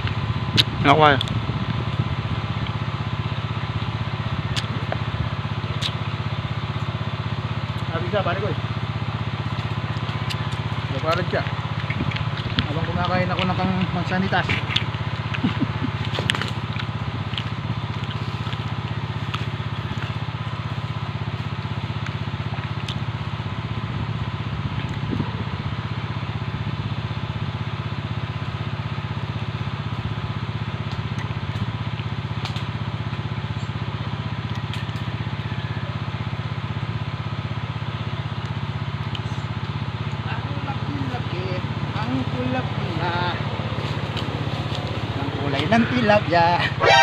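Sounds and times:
steady motor drone: 0:00.0 - 0:47.0.

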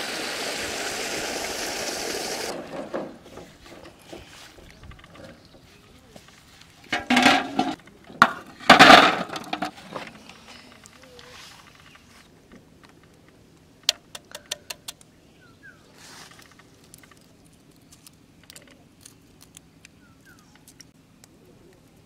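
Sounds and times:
eggs clattering in steel bowl: 0:06.9 - 0:09.8.

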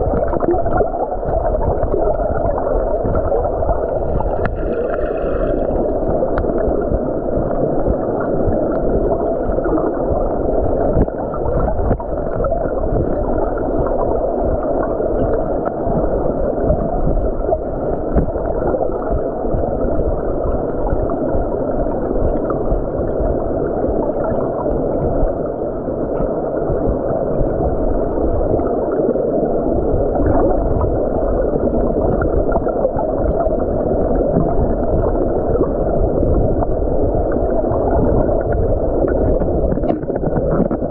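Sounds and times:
muffled underwater stream rush: 0:00.0 - 0:40.9.

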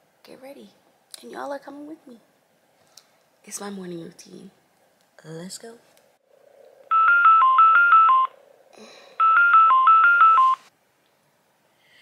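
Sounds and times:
phone alarm beeping: 0:06.9 - 0:08.4, 0:09.2 - 0:10.7.

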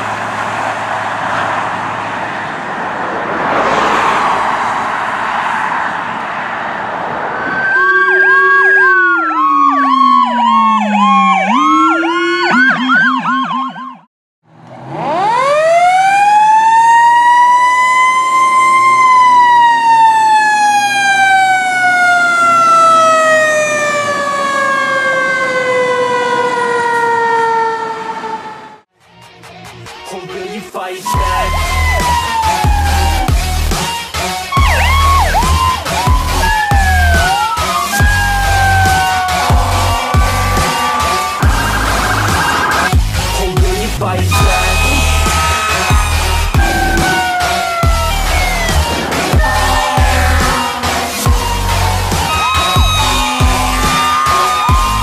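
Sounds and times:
emergency vehicle sirens yelping: 0:00.0 - 0:28.9, 0:31.1 - 0:55.0
road traffic noise: 0:00.0 - 0:55.0
siren winding up and down: 0:07.4 - 0:14.1, 0:14.9 - 0:28.4, 0:31.1 - 0:33.9, 0:34.5 - 0:43.5, 0:44.3 - 0:55.0.

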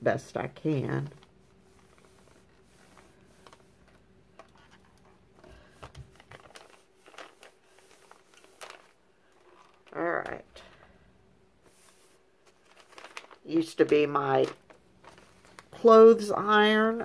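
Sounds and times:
iron sliding over paper: 0:01.4 - 0:04.0, 0:11.6 - 0:12.2.

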